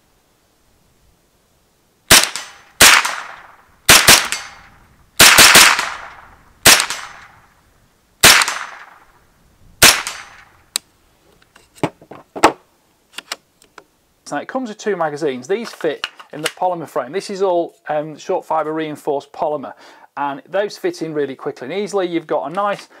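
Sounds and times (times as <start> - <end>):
rifle gunshots: 2.1 - 7.3, 8.2 - 9.1, 9.8 - 10.5.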